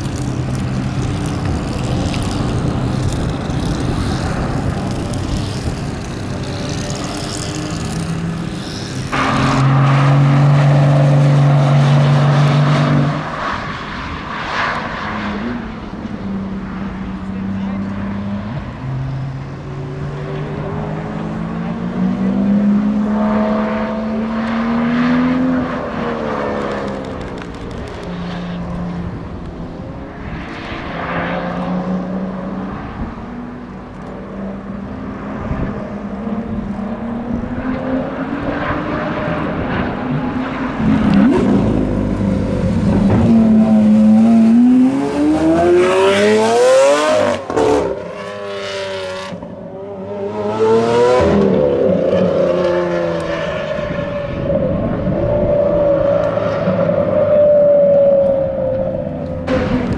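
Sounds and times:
car engine revving: 0.0s - 55.2s
car passing at speed: 7.5s - 27.3s, 28.1s - 59.9s
car engine accelerating hard: 34.8s - 57.2s.

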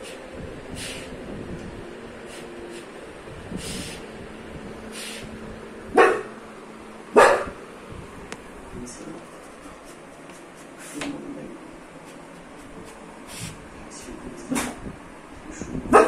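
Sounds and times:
dog barking: 5.9s - 6.4s, 7.1s - 7.6s.

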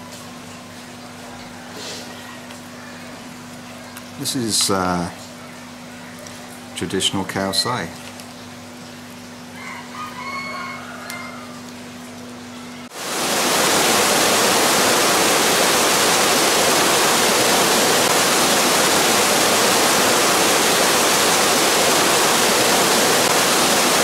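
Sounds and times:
waterfall rushing: 12.9s - 24.0s.

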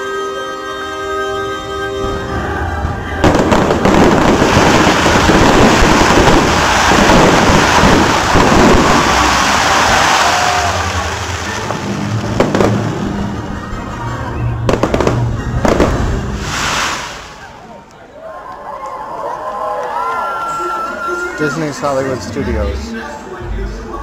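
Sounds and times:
sharp firework bang: 3.2s - 9.4s
fireworks bursting and crackling: 3.2s - 17.7s.

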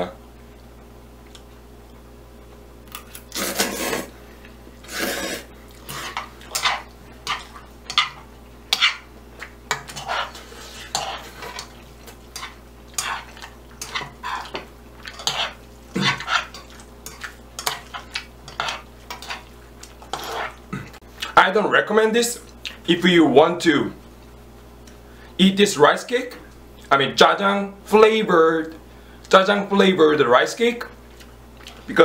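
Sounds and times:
utensils scraping frying pan: 3.3s - 4.2s, 4.8s - 9.1s, 9.7s - 20.6s.

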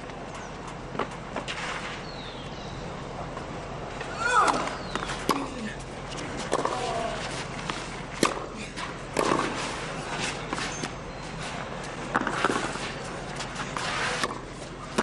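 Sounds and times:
tennis ball hit by racket: 6.4s - 8.5s, 9.1s - 9.7s.

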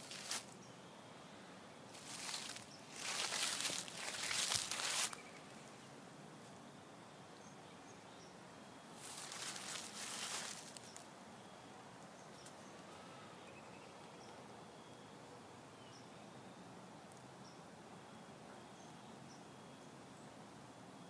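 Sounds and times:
rustling in dry leaves: 0.0s - 0.6s, 1.9s - 5.9s, 8.9s - 11.1s.

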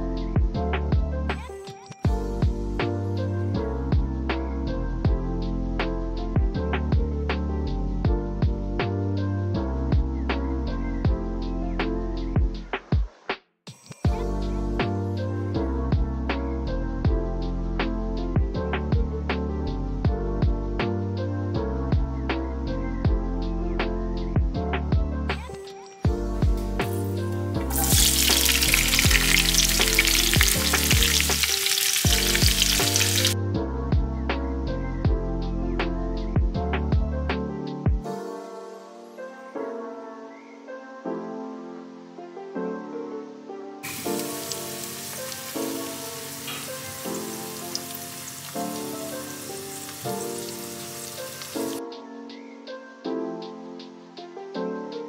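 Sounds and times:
background music with steady beat: 0.0s - 55.0s
food sizzling in a frying pan: 26.9s - 33.4s, 43.8s - 51.8s.

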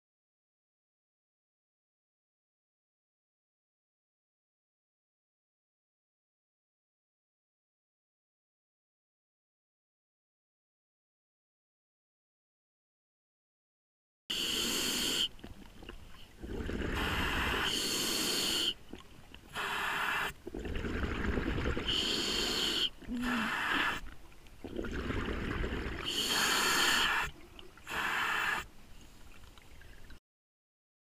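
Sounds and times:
regulator inhalation hiss: 14.3s - 15.3s, 17.0s - 18.8s, 19.5s - 20.4s, 21.8s - 24.0s, 26.0s - 27.3s, 27.9s - 28.7s
bubbling exhalations: 14.4s - 28.6s.

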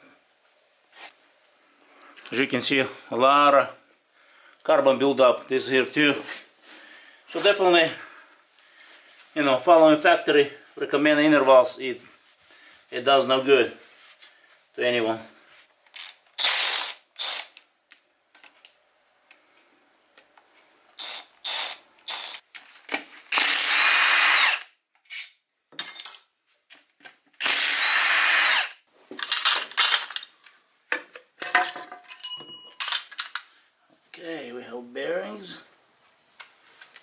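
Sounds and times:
metal clinks: 8.7s - 9.1s, 25.8s - 26.4s, 31.4s - 33.4s
power ratchet spinning: 16.0s - 17.6s, 21.0s - 22.4s, 23.3s - 24.7s, 27.4s - 28.8s.

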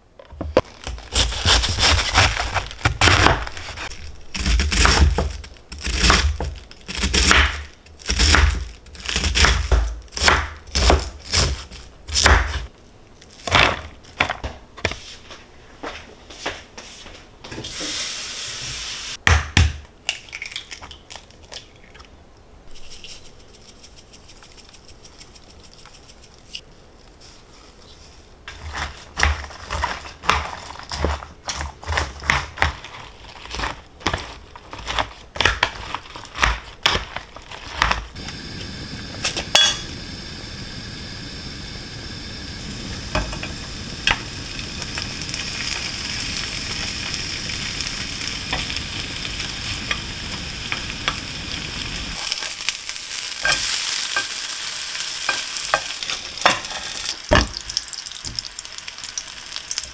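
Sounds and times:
food sizzling in a pan: 17.6s - 19.2s, 38.2s - 59.9s.

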